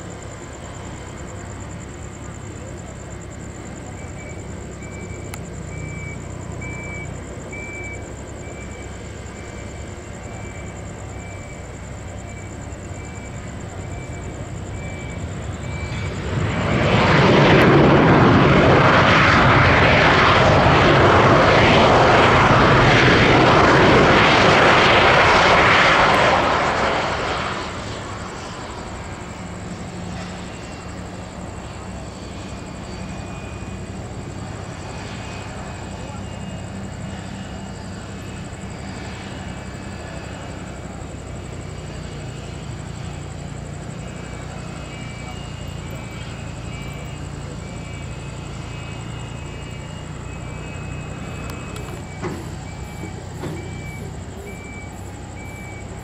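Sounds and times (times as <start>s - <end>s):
low jet engine hum: 0.0s - 56.0s
loud jet roar: 14.2s - 31.0s.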